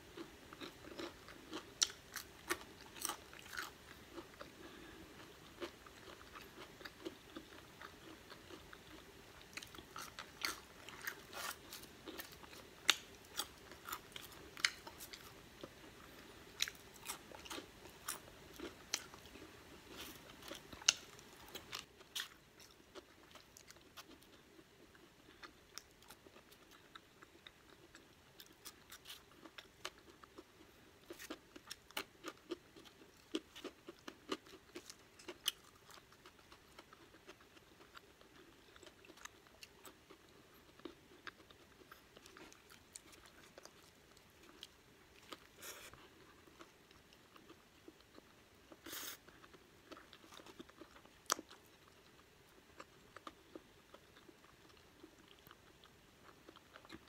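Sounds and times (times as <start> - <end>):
chewing crunchy fries: 0.1 - 57.0.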